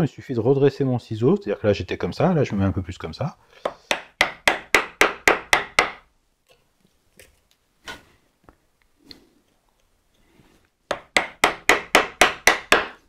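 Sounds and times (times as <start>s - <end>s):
mallet striking wood chisel: 3.6s - 6.1s, 10.9s - 13.0s.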